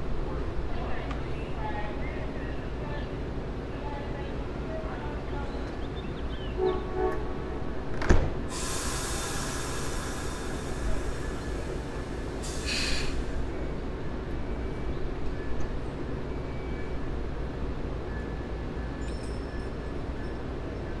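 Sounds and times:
train low rumble: 0:00.0 - 0:21.0
train air hiss: 0:08.4 - 0:13.9.

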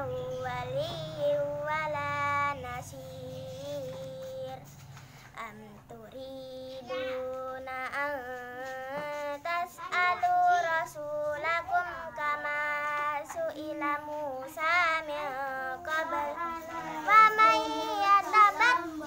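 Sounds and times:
girl chanting recitation: 0:00.0 - 0:19.0
short breaths: 0:04.7 - 0:05.4.

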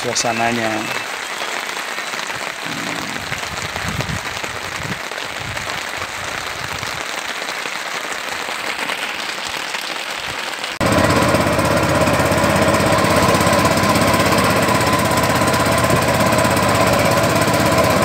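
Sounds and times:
heavy rain on sea: 0:00.0 - 0:18.0
boat engine running: 0:10.8 - 0:18.0.

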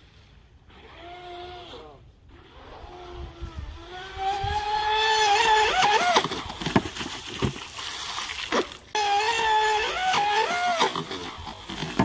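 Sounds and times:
rc boat motor whining: 0:00.7 - 0:06.9, 0:08.9 - 0:12.0
hull slapping water: 0:05.3 - 0:09.0.

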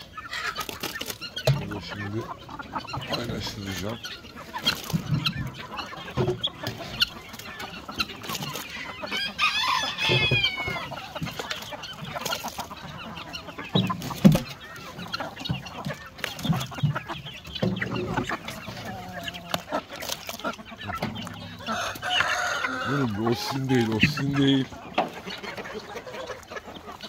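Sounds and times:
chickens clucking: 0:00.0 - 0:27.0
chickens pecking at bucket: 0:00.0 - 0:27.0
rising and falling chicken call: 0:08.8 - 0:11.2, 0:21.4 - 0:23.6.

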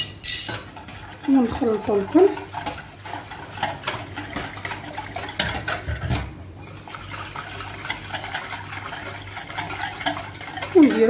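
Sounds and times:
whisk wires scraping a pan: 0:00.0 - 0:11.0
whisk sloshing in liquid: 0:00.5 - 0:11.0.

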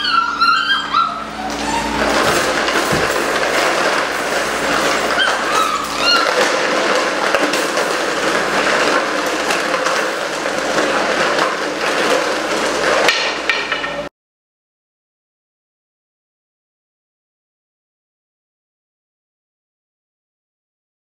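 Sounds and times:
puppy whines: 0:00.0 - 0:03.1, 0:04.8 - 0:06.8
puppies rattling wire pen: 0:00.0 - 0:14.1.

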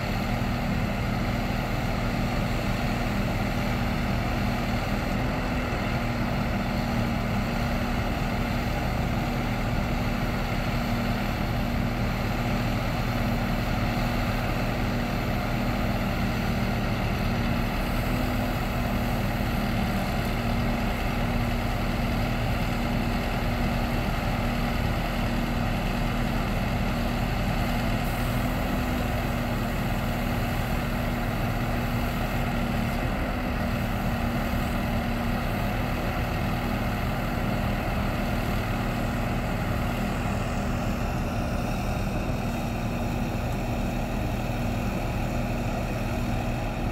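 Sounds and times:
diesel engine idling: 0:00.0 - 0:46.9.

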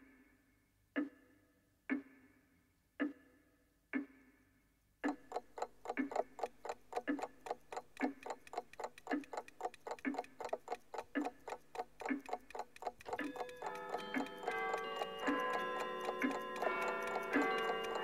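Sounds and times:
clock ticking: 0:05.0 - 0:18.0.

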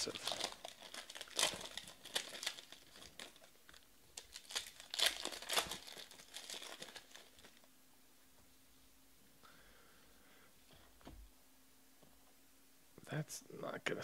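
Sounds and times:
foil wrapper crinkling: 0:00.0 - 0:07.7.

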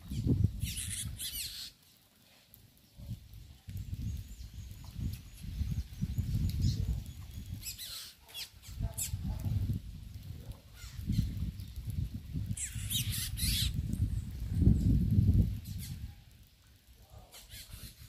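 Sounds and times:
faint bird chirps: 0:00.0 - 0:01.9, 0:03.8 - 0:09.2
wings fluttering: 0:00.0 - 0:16.4, 0:17.1 - 0:18.0.

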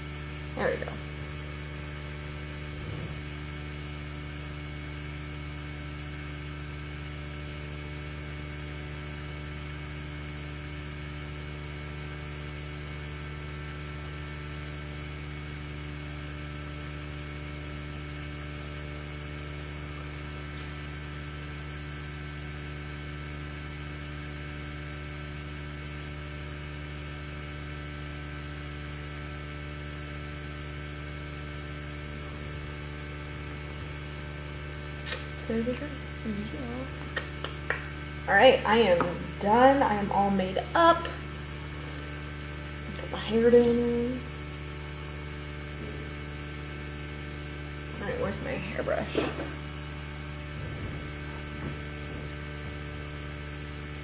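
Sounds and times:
low electrical hum: 0:00.0 - 0:54.0.

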